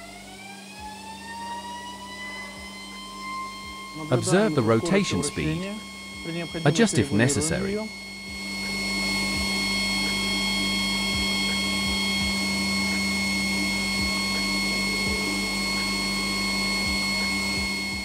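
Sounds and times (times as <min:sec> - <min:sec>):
high-speed spinning whine: 0:00.0 - 0:18.0.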